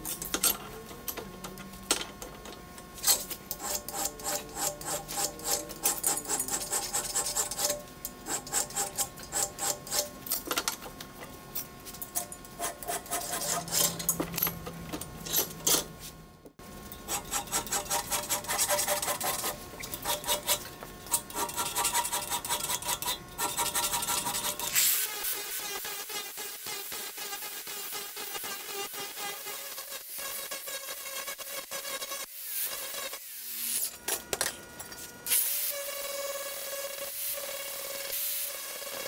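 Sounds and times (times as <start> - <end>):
hand file rasping on metal: 3.0 - 10.1, 12.6 - 14.1, 17.1 - 24.8.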